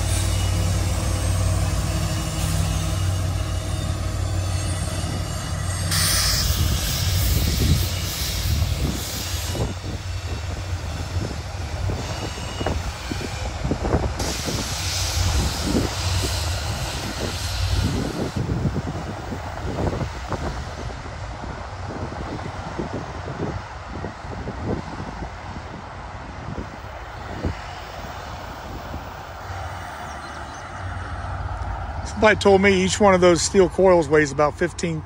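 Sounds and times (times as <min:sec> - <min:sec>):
train wheels clacking on rail: 0:00.0 - 0:20.9
diesel locomotive drone: 0:00.0 - 0:35.0
hiss: 0:05.9 - 0:11.1, 0:14.2 - 0:18.5.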